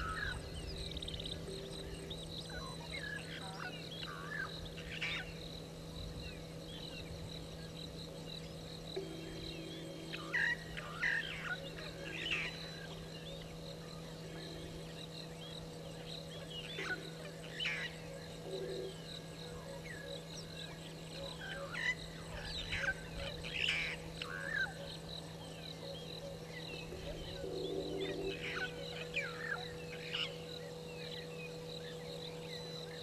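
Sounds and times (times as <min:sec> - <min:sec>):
insect-like trill: 0:00.0 - 0:33.0
low hum: 0:00.0 - 0:33.0.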